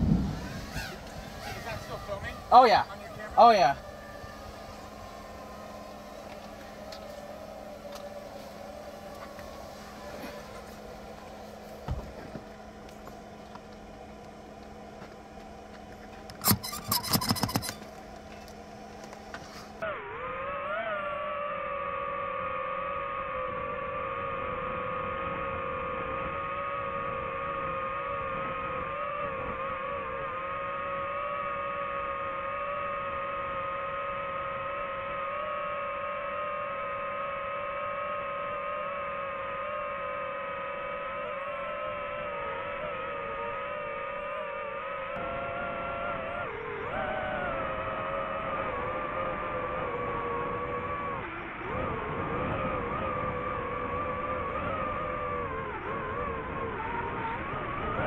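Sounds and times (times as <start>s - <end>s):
constant hiss: 0.0s - 19.8s
drone propellers whining: 0.0s - 58.0s
steady low hum: 0.0s - 58.0s.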